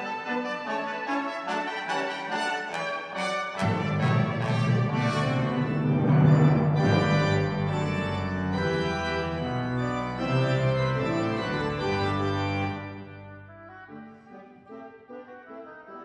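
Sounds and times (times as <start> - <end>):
organ playing full chords: 3.3 - 14.3.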